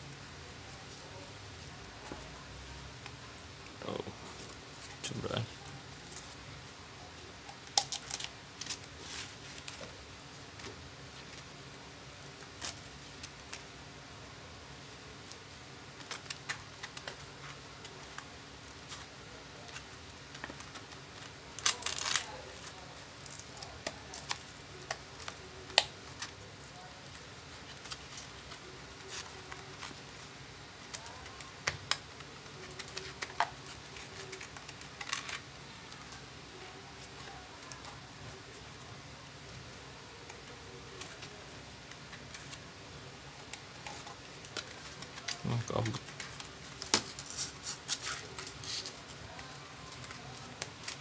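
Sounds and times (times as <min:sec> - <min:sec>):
sandpaper rubbing and crinkling: 0:43.8 - 0:51.0.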